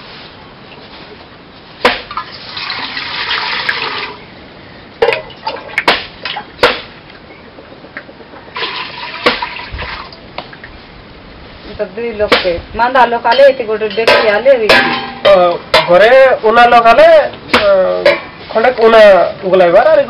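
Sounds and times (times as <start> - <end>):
water pouring into metal pot: 2.1 - 4.2, 8.6 - 10.2.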